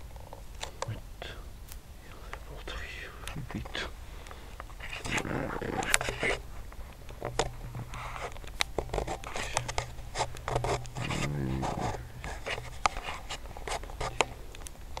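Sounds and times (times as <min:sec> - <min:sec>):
steady low hum: 0:00.0 - 0:15.0
microphone handling noise: 0:04.6 - 0:15.0.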